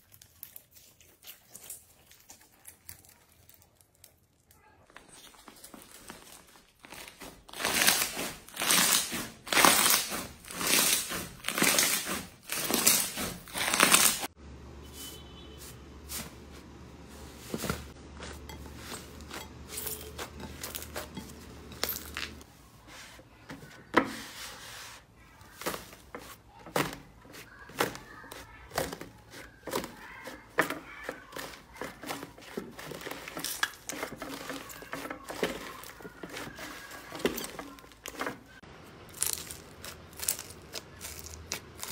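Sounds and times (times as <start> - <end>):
small clicks and crackles: 0.0 - 6.5.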